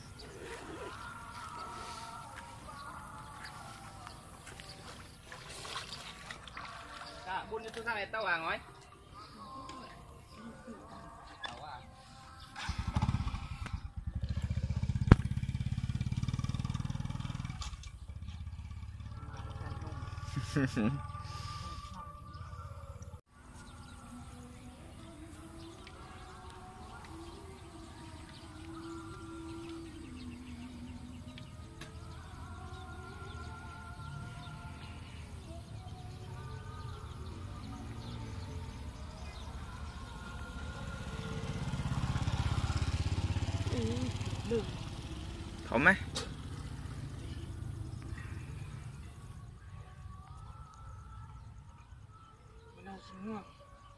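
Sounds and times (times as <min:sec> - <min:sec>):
small engine pulsing: 0:11.9 - 0:23.1, 0:25.5 - 0:49.6.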